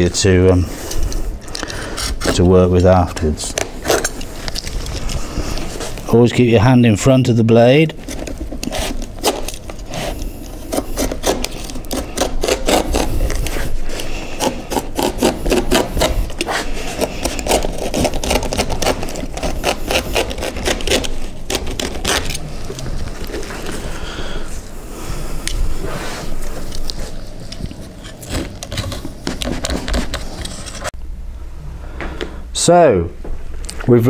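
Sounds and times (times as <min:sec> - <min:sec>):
knife cutting fibreglass: 0:08.0 - 0:23.5.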